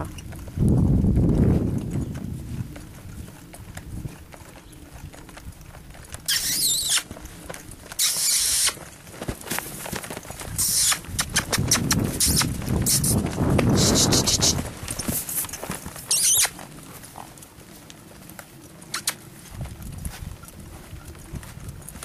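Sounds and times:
horse hoofbeats on dirt: 0:00.0 - 0:22.0
high hiss and squeaking bursts: 0:06.3 - 0:07.1, 0:08.0 - 0:08.8, 0:10.6 - 0:11.0, 0:16.1 - 0:16.5.

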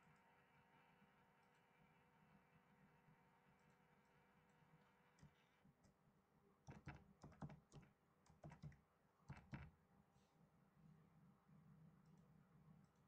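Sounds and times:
faint keyboard typing: 0:05.2 - 0:06.0, 0:06.6 - 0:09.8.

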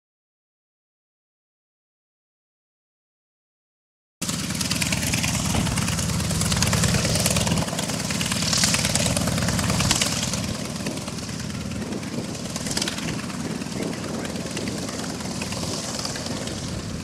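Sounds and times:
propeller noise: 0:04.2 - 0:17.0
radial aircraft engine rumbling: 0:04.2 - 0:17.0.

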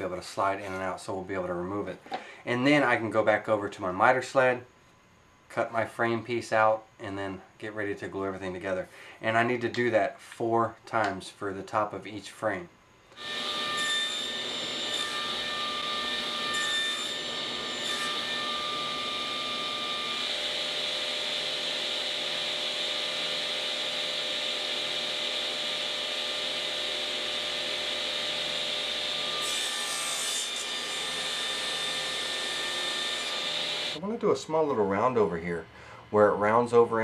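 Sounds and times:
table saw motor whine: 0:13.1 - 0:34.0
saw blade cutting wood: 0:13.2 - 0:22.2, 0:22.9 - 0:34.0.

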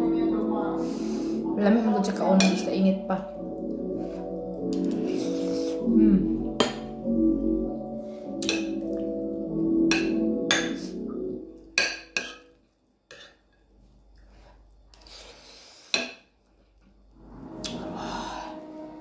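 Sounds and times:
soft background music: 0:00.0 - 0:12.8, 0:17.1 - 0:19.0.

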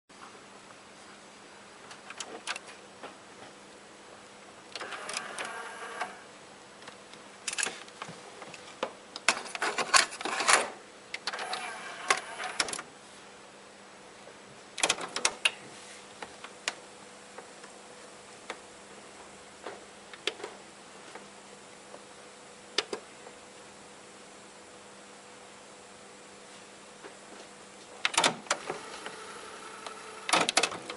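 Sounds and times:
faint steady hum: 0:00.1 - 0:30.9
cassette deck mechanism clicking and whirring: 0:04.7 - 0:06.2, 0:09.2 - 0:12.9, 0:14.8 - 0:15.6, 0:28.1 - 0:30.9.

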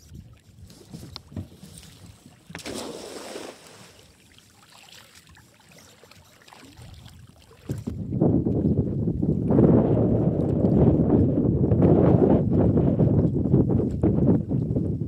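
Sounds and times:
faint water: 0:00.0 - 0:11.4
wind: 0:00.0 - 0:15.0
net splashing into water: 0:01.9 - 0:05.2.

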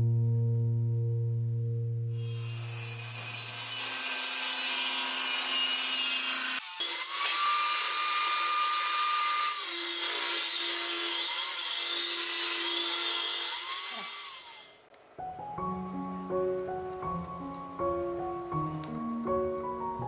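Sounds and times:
table saw ripping wood: 0:02.2 - 0:14.8.

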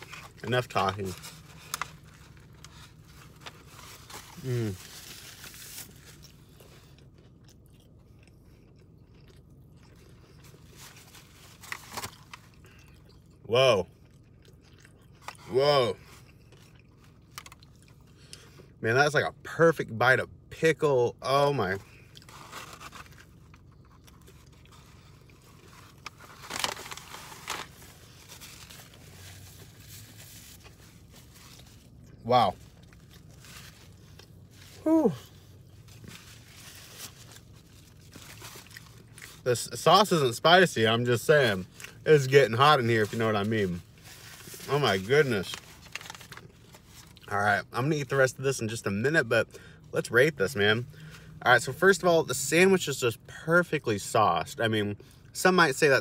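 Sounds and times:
person chewing crunchy food: 0:00.0 - 0:18.8, 0:21.8 - 0:39.4.

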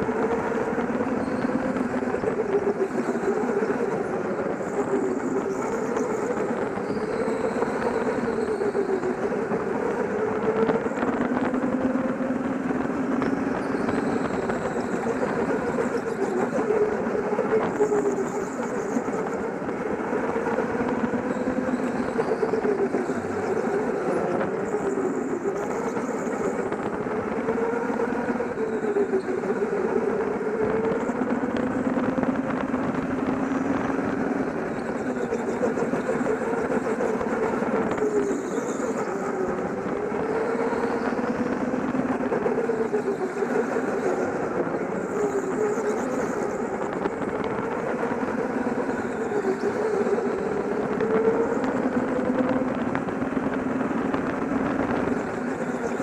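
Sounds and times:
go-kart motor running: 0:00.0 - 0:56.0.

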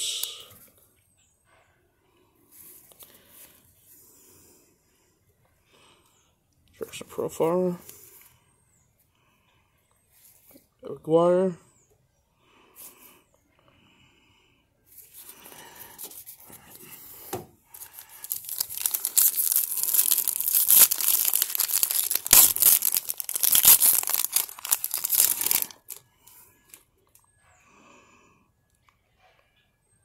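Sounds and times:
foil wrapper crinkling and tearing: 0:17.8 - 0:26.0.

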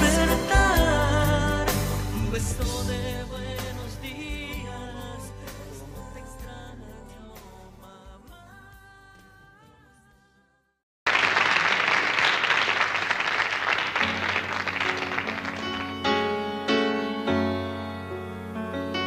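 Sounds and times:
piano playing: 0:00.0 - 0:05.5, 0:13.7 - 0:19.0
song: 0:00.0 - 0:09.0, 0:13.6 - 0:19.0
audience applause: 0:11.1 - 0:16.4.

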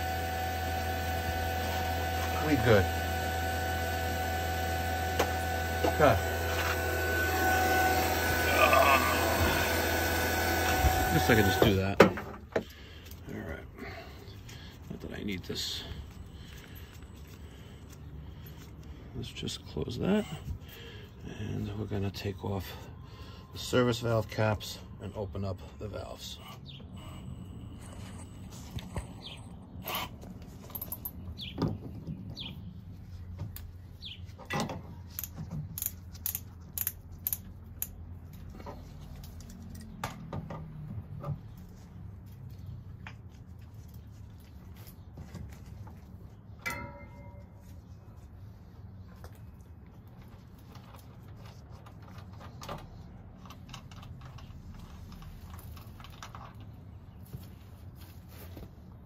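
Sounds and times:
tools clicking and knocking: 0:34.4 - 0:38.8.

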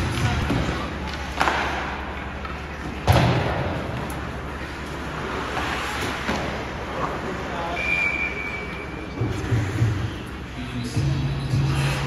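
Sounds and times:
bang against rink boards: 0:00.0 - 0:02.0, 0:03.0 - 0:04.1
puck thud: 0:00.0 - 0:04.3.

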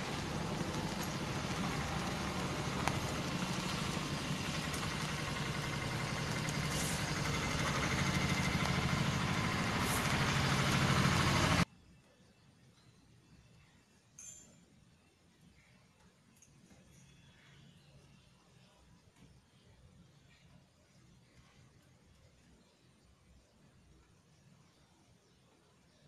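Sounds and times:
rain: 0:00.0 - 0:11.6
low hum: 0:00.0 - 0:11.7.

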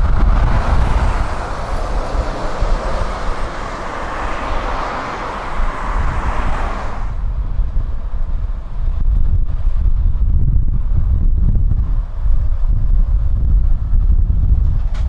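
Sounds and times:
lorry diesel engine driving past: 0:00.0 - 0:07.4.

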